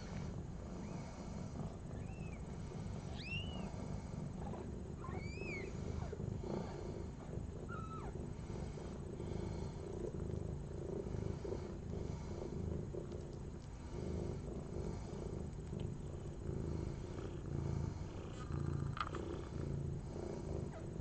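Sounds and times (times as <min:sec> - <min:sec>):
cat purring: 0:00.0 - 0:21.0
kittens squeaking: 0:02.0 - 0:02.4, 0:03.1 - 0:03.7, 0:04.4 - 0:06.1.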